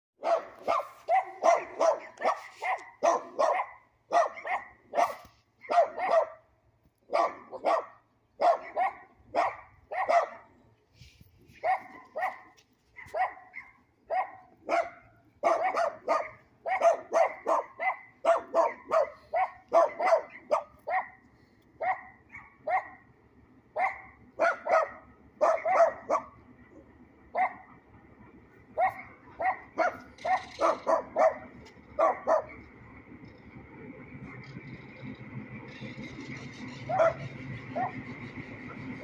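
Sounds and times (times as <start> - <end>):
dog barking: 0.2 - 6.4, 7.1 - 10.5, 11.6 - 21.2, 21.8 - 23.0, 23.8 - 26.4, 27.3 - 27.7, 28.8 - 32.6, 36.9 - 38.0.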